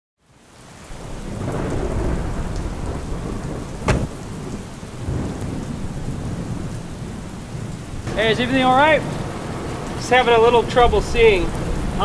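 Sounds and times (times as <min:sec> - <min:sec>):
rain falling: 0:00.2 - 0:12.0
low rumble of thunder: 0:00.9 - 0:10.0
sharp knock: 0:03.8 - 0:04.1.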